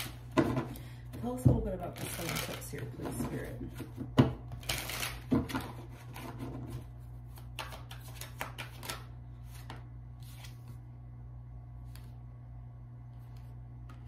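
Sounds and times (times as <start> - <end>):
cards shuffled by hand: 4.6 - 10.8.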